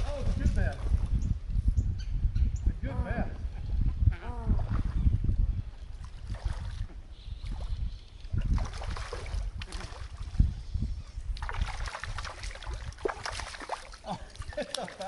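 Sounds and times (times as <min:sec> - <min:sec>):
legs wading in shallow water: 0:04.4 - 0:15.0.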